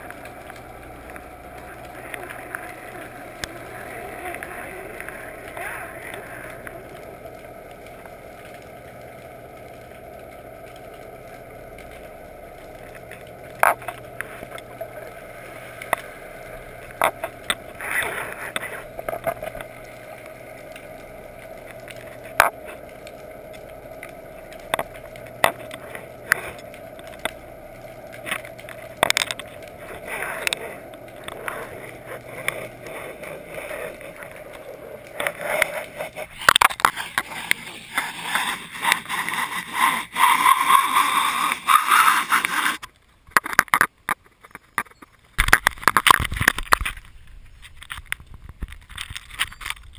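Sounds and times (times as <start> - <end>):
muffled underwater water rush: 0.0 - 43.6
sharp clicks and knocks: 42.4 - 49.9.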